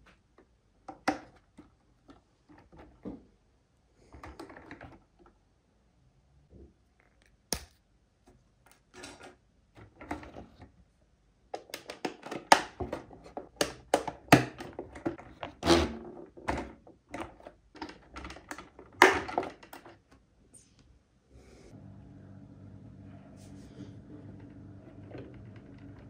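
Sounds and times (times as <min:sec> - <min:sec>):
plastic parts clicking and snapping: 0:11.6 - 0:15.6.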